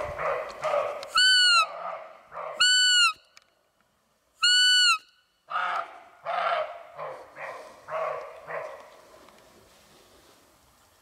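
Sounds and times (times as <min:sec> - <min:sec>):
deer call high piping calls: 0:01.1 - 0:01.7, 0:02.6 - 0:03.2, 0:04.4 - 0:06.7.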